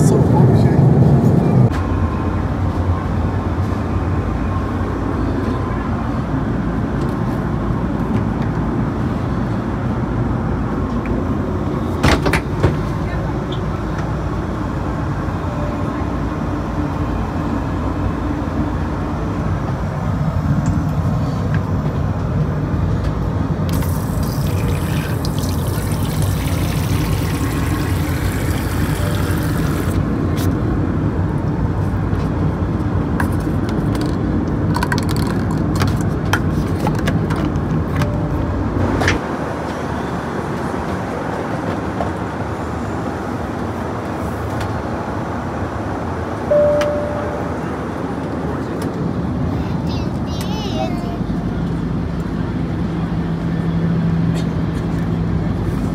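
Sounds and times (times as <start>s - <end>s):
aircraft cabin roar: 0.0s - 55.9s
cups and fittings clicking: 23.7s - 30.0s
water running from sink tap: 23.7s - 30.0s.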